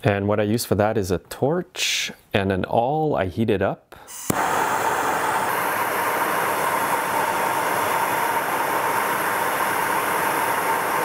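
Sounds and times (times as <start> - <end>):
gas torch hissing: 4.1 - 11.0.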